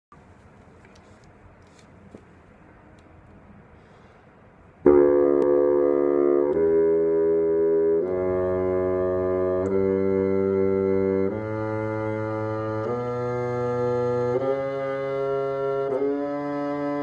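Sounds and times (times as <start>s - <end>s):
bassoon long held notes: 4.8s - 17.0s.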